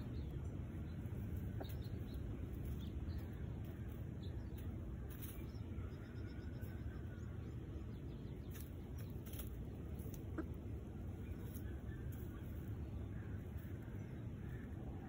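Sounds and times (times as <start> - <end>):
steady low rumble: 0.0 - 15.0
hens clucking: 1.0 - 2.8, 9.3 - 12.8.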